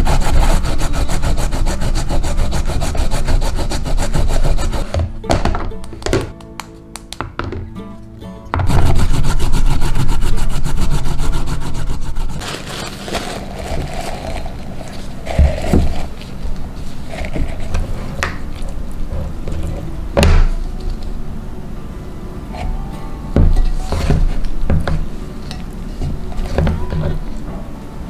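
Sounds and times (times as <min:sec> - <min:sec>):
carrot grating on plastic grater: 0:00.0 - 0:04.9, 0:08.7 - 0:16.2
filter bag rustling: 0:12.4 - 0:17.7.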